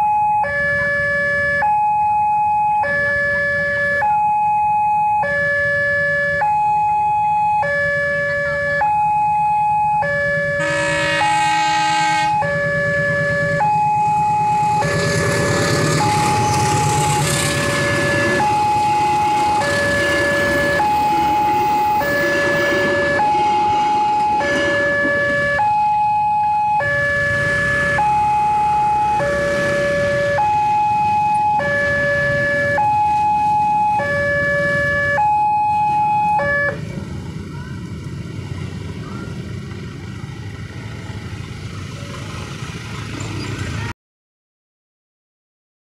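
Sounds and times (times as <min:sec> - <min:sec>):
motorcycle engines running: 0:10.2 - 0:35.0, 0:35.6 - 0:43.9
train horn: 0:10.6 - 0:12.5, 0:14.8 - 0:25.4
train rumbling past: 0:13.0 - 0:25.7, 0:27.2 - 0:31.4, 0:36.7 - 0:43.9.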